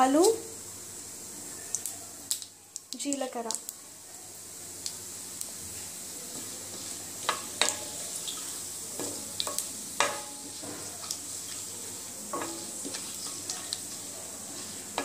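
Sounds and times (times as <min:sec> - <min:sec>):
spices sizzling in hot oil: 0:00.0 - 0:15.0
wooden spatula stirring: 0:06.2 - 0:15.0.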